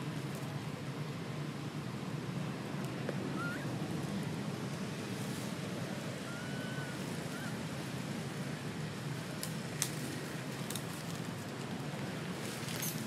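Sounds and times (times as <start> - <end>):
outdoor background rush: 0.0 - 13.0.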